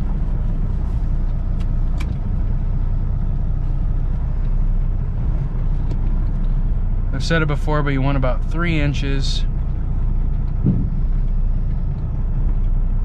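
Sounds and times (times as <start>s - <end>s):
truck diesel engine at low revs: 0.0s - 13.0s.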